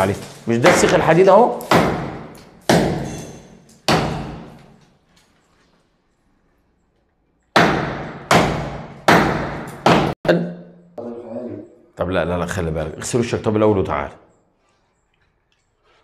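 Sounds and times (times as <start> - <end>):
hammer striking concrete: 0.6 - 4.6, 7.5 - 10.2.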